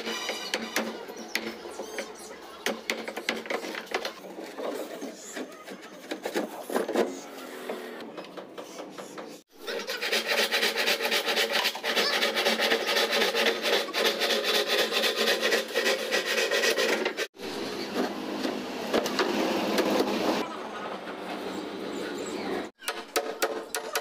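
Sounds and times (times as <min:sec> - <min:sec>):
plywood scraping: 0:09.8 - 0:17.4.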